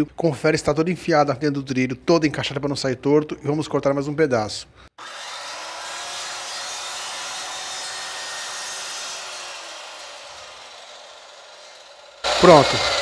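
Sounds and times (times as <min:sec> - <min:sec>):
circular saw cutting wood: 0:05.0 - 0:13.0.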